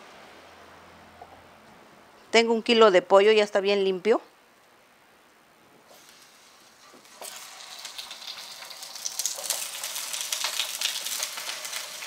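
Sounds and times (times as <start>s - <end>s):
chicken sizzling in hot oil: 5.9s - 12.0s.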